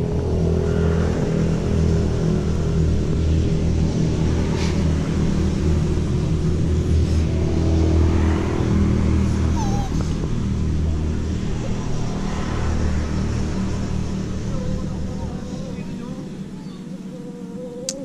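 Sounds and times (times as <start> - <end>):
low motor hum: 0.0 - 18.0
puppy whining: 9.5 - 10.2, 14.6 - 18.0.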